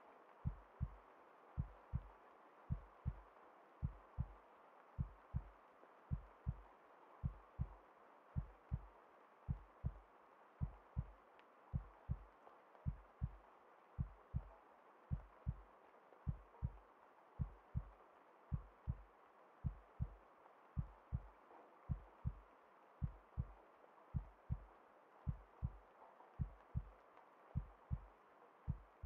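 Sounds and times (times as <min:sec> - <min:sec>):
soft steady hiss: 0:00.0 - 0:29.0
heartbeat thumping: 0:00.4 - 0:01.0, 0:01.6 - 0:02.1, 0:02.7 - 0:03.2, 0:03.8 - 0:04.4, 0:05.0 - 0:05.5, 0:06.1 - 0:07.8, 0:08.4 - 0:08.9, 0:09.5 - 0:10.0, 0:10.6 - 0:11.1, 0:11.7 - 0:12.2, 0:12.8 - 0:13.4, 0:14.0 - 0:15.6, 0:16.3 - 0:16.8, 0:17.4 - 0:19.0, 0:19.6 - 0:20.2, 0:20.8 - 0:21.3, 0:21.9 - 0:22.4, 0:23.0 - 0:25.8, 0:26.4 - 0:27.0, 0:27.6 - 0:28.1, 0:28.7 - 0:29.0.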